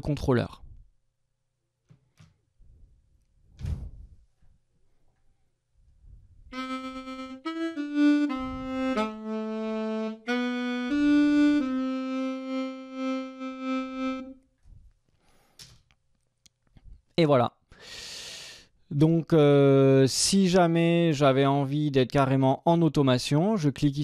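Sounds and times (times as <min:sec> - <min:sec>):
saxophone melody: 0:06.5 - 0:14.4.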